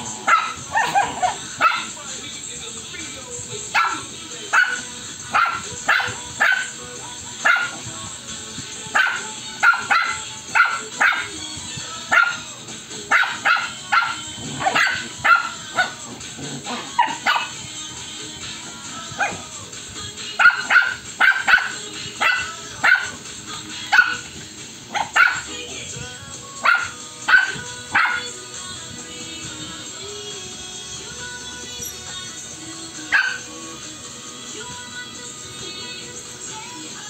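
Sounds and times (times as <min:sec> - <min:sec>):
puppies barking and yipping: 0:00.0 - 0:02.0, 0:03.7 - 0:06.8, 0:07.4 - 0:07.9, 0:08.8 - 0:11.4, 0:12.1 - 0:17.7, 0:19.0 - 0:19.4, 0:20.2 - 0:25.6, 0:26.6 - 0:28.4, 0:33.0 - 0:33.5.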